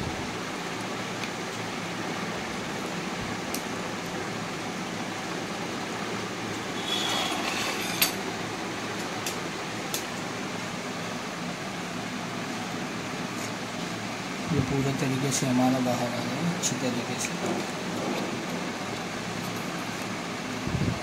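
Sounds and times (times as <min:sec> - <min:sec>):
fan-like hiss: 0:00.0 - 0:21.0
rustling scrape: 0:06.8 - 0:08.2.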